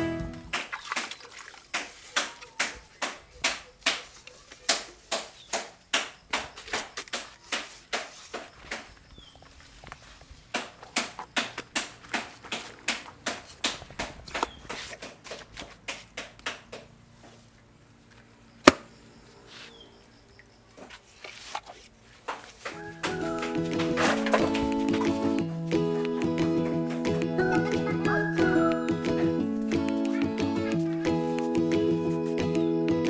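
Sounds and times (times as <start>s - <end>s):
hands slapping wet clay: 0.5s - 8.9s.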